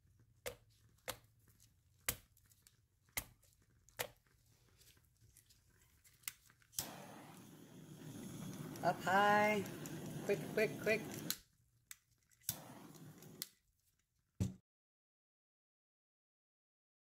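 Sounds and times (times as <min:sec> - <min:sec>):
candle crackling pops: 0:06.2 - 0:13.6
steady hiss: 0:06.8 - 0:11.3, 0:12.5 - 0:13.4.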